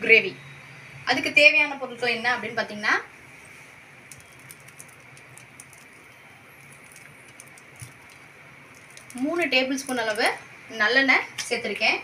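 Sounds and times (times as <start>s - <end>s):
oil pouring: 4.1s - 9.2s.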